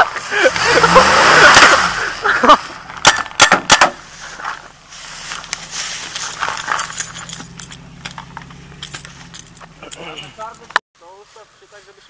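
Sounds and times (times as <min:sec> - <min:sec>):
pickup truck engine humming: 0:00.0 - 0:10.8
sharp knocks: 0:03.0 - 0:04.0
footsteps in grass: 0:04.0 - 0:07.2.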